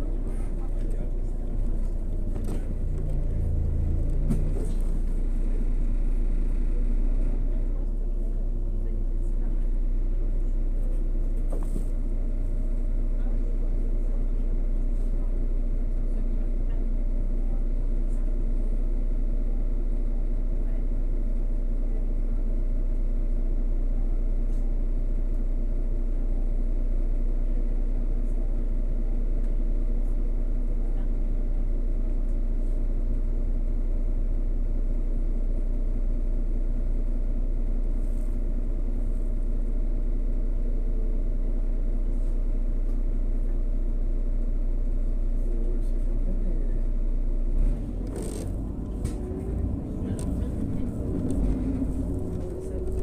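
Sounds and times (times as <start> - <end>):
bus engine rumbling: 0.0 - 25.2, 26.2 - 53.0.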